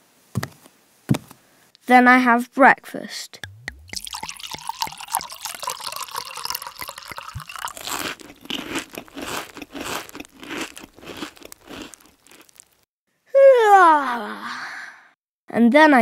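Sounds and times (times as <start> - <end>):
milk pouring onto cereal: 3.8 - 12.8
crunchy cereal being chewed: 4.0 - 12.9.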